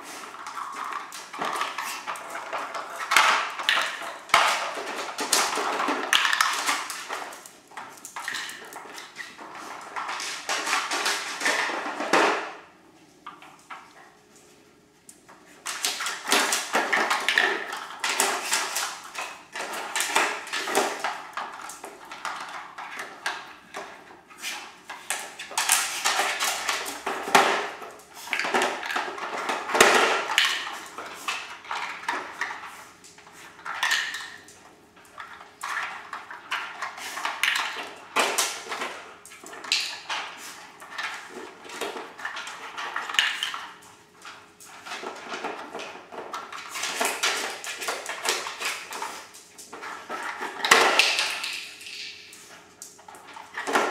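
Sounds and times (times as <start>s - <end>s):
plastic toys clattering on tile floor: 0.0s - 14.1s, 15.3s - 53.9s.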